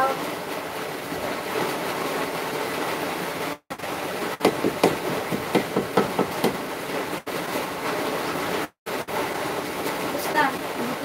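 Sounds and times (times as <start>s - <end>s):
sharp knocks: 4.4s - 6.7s.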